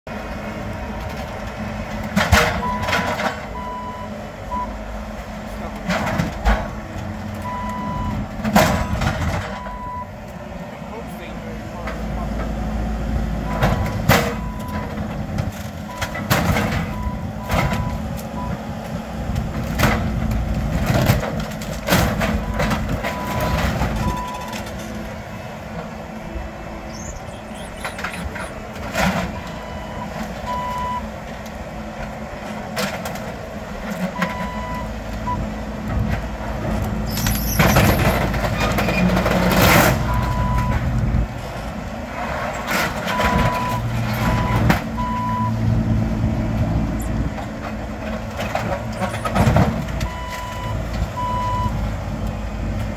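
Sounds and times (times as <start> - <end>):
diesel engine under load: 0.1 - 52.9
reversing alarm beeping: 7.4 - 10.2, 13.5 - 14.9, 16.8 - 18.6, 29.3 - 31.1, 34.2 - 35.4, 43.1 - 45.6, 50.0 - 51.8.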